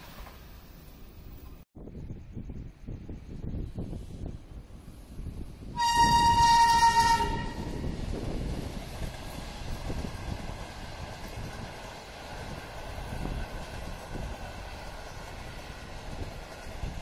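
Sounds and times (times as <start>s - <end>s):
train rumbling past: 2.6s - 17.0s
locomotive horn blast: 5.8s - 7.8s.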